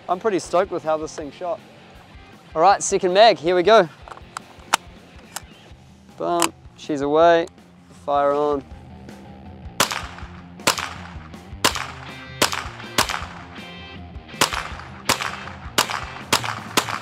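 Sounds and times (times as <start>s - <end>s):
rifle shots cracking: 9.8s - 13.6s, 14.4s - 17.0s.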